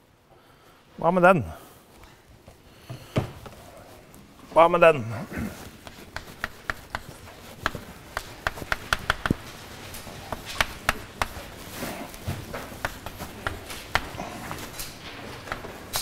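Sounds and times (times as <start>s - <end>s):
pencil tapping and clicking: 5.8s - 16.0s.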